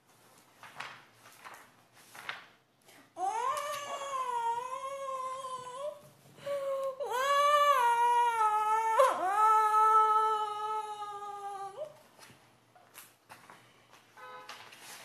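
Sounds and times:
woman squealing: 0:03.2 - 0:12.0.

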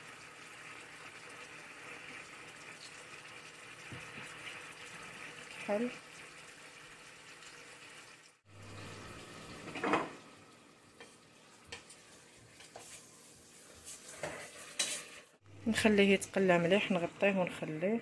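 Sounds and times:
meat sizzling in a pot: 0:00.0 - 0:17.8
spoon scraping a pot: 0:11.0 - 0:15.4.

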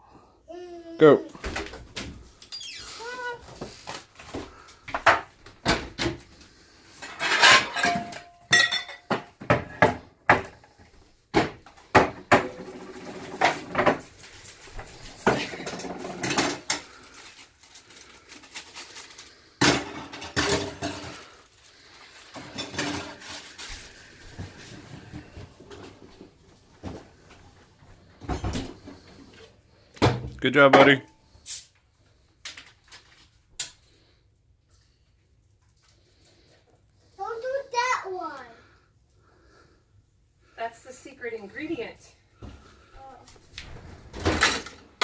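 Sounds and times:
dishes and utensils clattering: 0:06.9 - 0:10.7, 0:11.4 - 0:14.1, 0:15.2 - 0:17.0, 0:19.6 - 0:21.4, 0:22.3 - 0:23.4.

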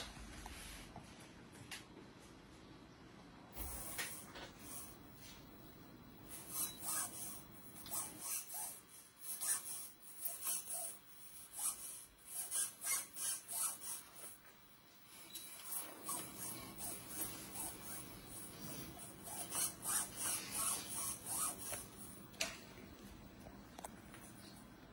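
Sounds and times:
plastic model parts rubbing and clicking: 0:03.6 - 0:05.6, 0:06.2 - 0:22.7.

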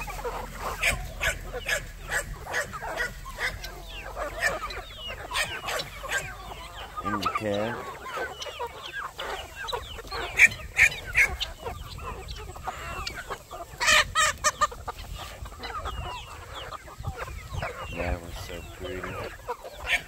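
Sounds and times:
chicken squawks: 0:00.0 - 0:20.0
chickens clucking: 0:00.0 - 0:20.0.

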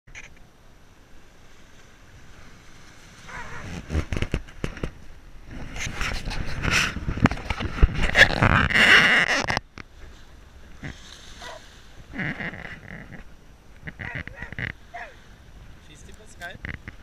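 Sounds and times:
wind on microphone: 0:02.2 - 0:17.0
camera handling rubbing and knocking: 0:03.8 - 0:05.0.

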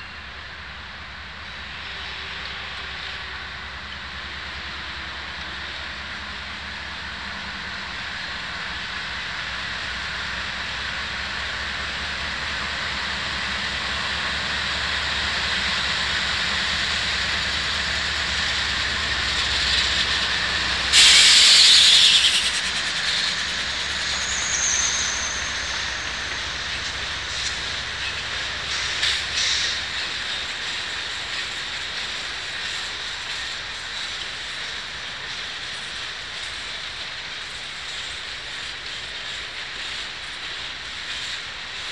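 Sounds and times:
diesel locomotive engine drone: 0:00.0 - 0:41.9
loud air hiss: 0:20.9 - 0:26.5.

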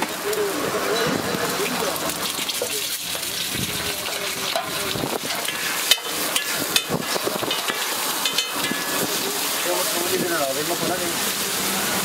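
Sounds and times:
egg mixture sizzling on a griddle: 0:00.0 - 0:12.0
steel spatula scraping and clanking: 0:02.2 - 0:11.0.

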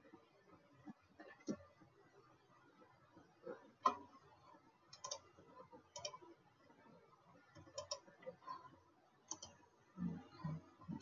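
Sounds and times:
computer mouse clicks: 0:04.9 - 0:05.3, 0:05.9 - 0:06.3, 0:07.5 - 0:08.1, 0:09.3 - 0:09.6.

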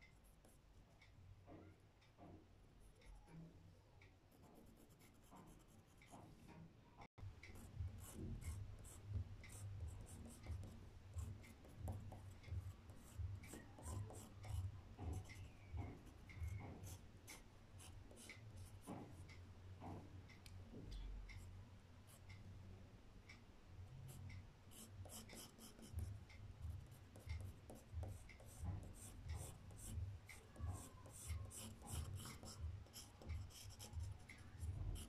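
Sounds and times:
pencil scratching on paper: 0:04.3 - 0:06.3, 0:07.6 - 0:19.2, 0:24.7 - 0:26.0, 0:26.8 - 0:35.0.

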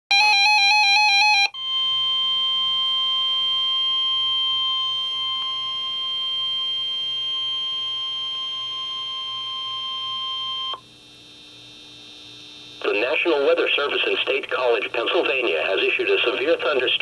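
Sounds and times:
steady warning alarm tone: 0:00.1 - 0:10.8.

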